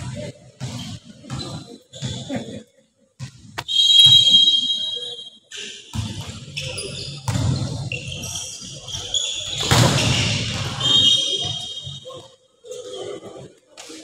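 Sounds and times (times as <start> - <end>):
voices in a hall: 0.0 - 14.0
referee whistle blast: 3.6 - 5.4, 10.0 - 12.0.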